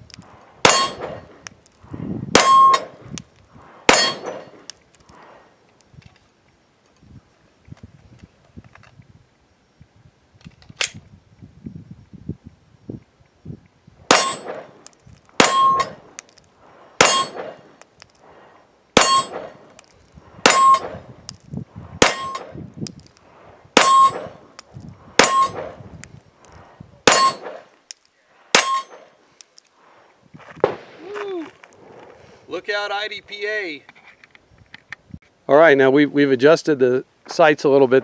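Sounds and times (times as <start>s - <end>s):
steel target ringing: 0.6s - 1.3s, 2.3s - 3.0s, 3.9s - 4.7s, 14.1s - 14.8s, 15.4s - 16.0s, 17.0s - 17.6s, 19.0s - 19.7s, 20.4s - 21.0s, 22.0s - 22.6s, 23.8s - 24.6s, 25.2s - 25.8s, 27.1s - 27.6s, 28.5s - 29.1s
pistol shots: 14.1s - 14.8s, 15.4s - 16.0s, 17.0s - 17.7s, 27.1s - 27.7s.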